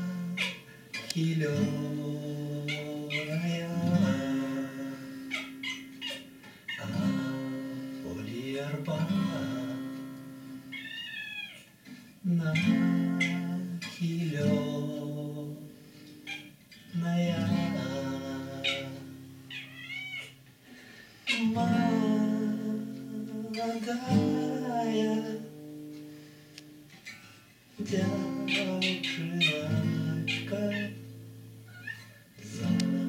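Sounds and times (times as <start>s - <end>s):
man singing: 0.0s - 5.6s, 6.8s - 10.4s, 12.2s - 15.8s, 16.9s - 19.3s, 21.3s - 25.8s, 27.8s - 31.1s, 32.4s - 33.0s
acoustic guitar strummed chords: 0.0s - 10.7s, 12.2s - 16.2s, 16.8s - 19.5s, 20.7s - 26.9s, 27.7s - 31.7s, 32.4s - 33.0s
cat meowing: 5.3s - 7.0s, 10.7s - 11.7s, 19.5s - 20.4s, 31.7s - 32.2s.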